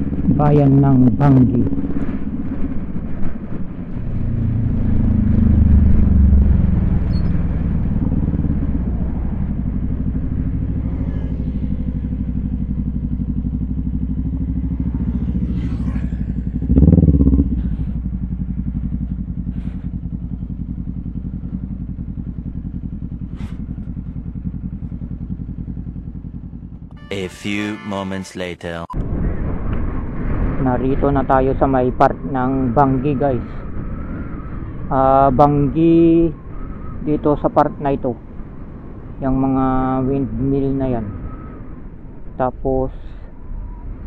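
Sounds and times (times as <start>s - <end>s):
motorcycle engine running: 0.0s - 27.1s.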